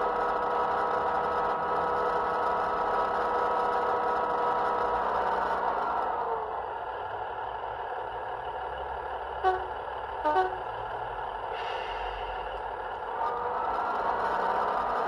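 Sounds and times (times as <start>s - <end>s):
diesel train engines idling: 0.0s - 15.0s
train horn blasts: 9.4s - 10.8s
air hiss: 11.5s - 12.4s.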